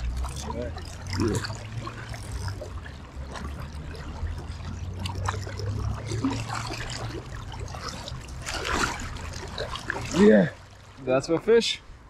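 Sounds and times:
river water running: 0.0 - 12.0.

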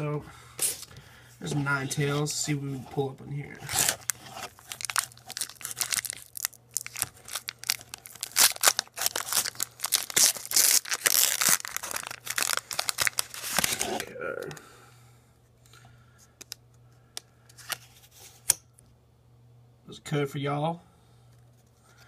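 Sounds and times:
foil wrapper crinkling and tearing: 3.6 - 14.1.

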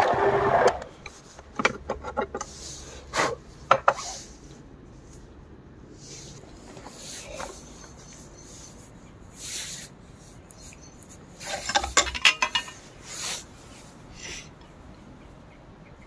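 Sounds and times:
soft rustles: 4.2 - 12.0.

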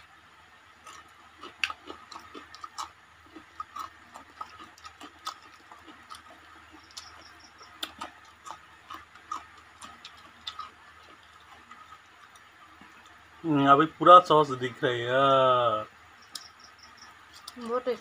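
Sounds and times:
wet chewing and lip smacks: 0.8 - 13.2, 17.3 - 17.6.

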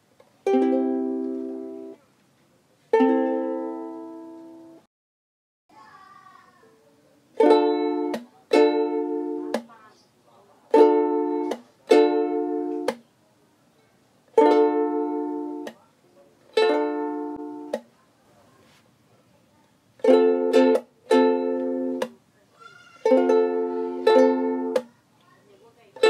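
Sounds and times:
ukulele strumming chords: 0.2 - 2.0, 2.9 - 4.8, 7.4 - 9.8, 10.7 - 13.1, 14.3 - 15.8, 16.4 - 17.9, 20.0 - 22.2, 23.0 - 24.9.

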